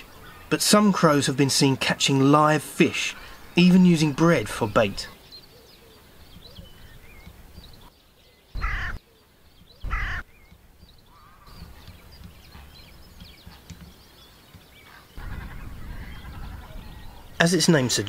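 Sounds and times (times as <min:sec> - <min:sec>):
faint small birds chirping: 0:00.0 - 0:18.0
crow cawing: 0:08.6 - 0:09.0, 0:09.8 - 0:10.3, 0:11.1 - 0:11.6.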